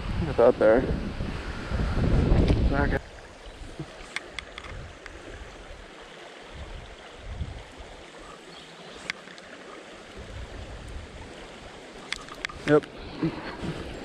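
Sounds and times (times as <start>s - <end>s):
wind on microphone: 0.0s - 5.9s, 6.5s - 8.1s, 10.1s - 14.0s
river water rushing: 3.0s - 14.0s.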